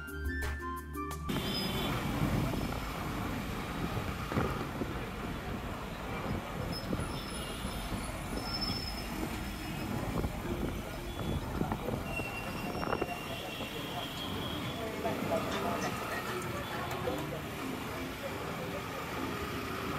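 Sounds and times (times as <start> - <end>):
faint high squeals: 6.7 - 10.0, 11.1 - 14.8.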